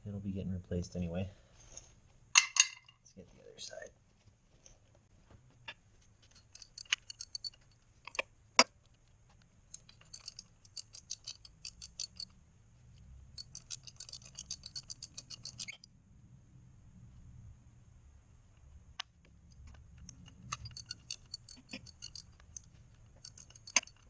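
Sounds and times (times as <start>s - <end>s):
ratchet wrench clicking: 6.3s - 8.2s, 9.7s - 12.3s, 13.4s - 15.8s, 20.0s - 24.0s.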